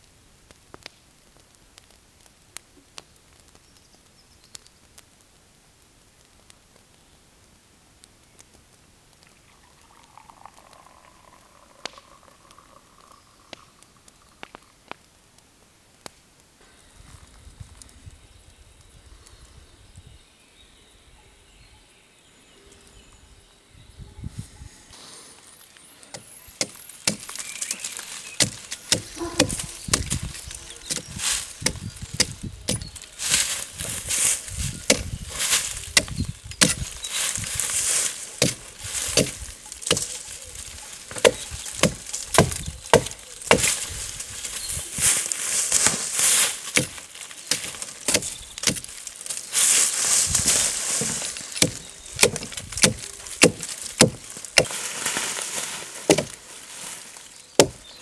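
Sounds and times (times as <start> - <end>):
branches rustling and crackling: 0.0 - 19.6, 24.3 - 58.0
axe chopping wood: 26.1 - 27.4, 28.4 - 32.9, 34.9 - 35.2, 36.0 - 36.9, 38.4 - 40.1, 41.1 - 43.8, 46.7 - 48.9, 51.0 - 54.8, 56.1 - 56.4, 57.6 - 57.8.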